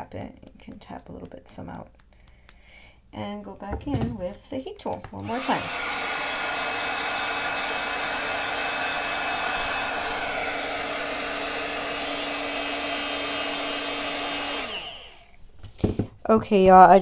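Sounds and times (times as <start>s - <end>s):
heat gun fan humming: 5.2s - 16.0s.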